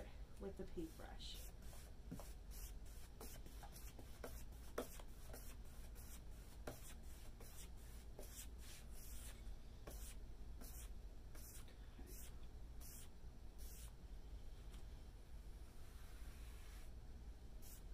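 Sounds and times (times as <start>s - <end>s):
paintbrush swishing: 0.9s - 13.9s.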